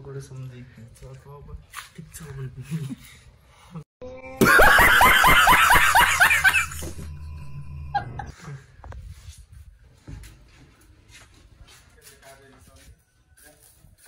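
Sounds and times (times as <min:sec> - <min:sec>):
man laughing loudly: 0:04.4 - 0:07.1, 0:07.9 - 0:08.4.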